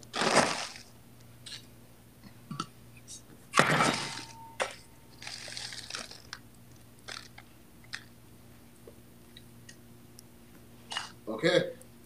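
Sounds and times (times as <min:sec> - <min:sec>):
bag of ice rustling and crunching: 0:00.0 - 0:00.9, 0:03.8 - 0:04.3, 0:05.1 - 0:06.4, 0:07.1 - 0:07.4.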